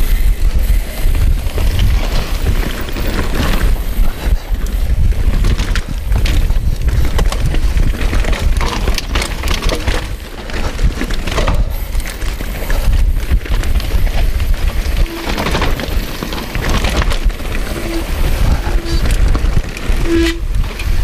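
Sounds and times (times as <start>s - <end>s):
bike rattling over bumps: 0.0s - 21.0s
wind rumble on microphone: 0.0s - 21.0s
tyres rolling over dirt: 0.5s - 21.0s.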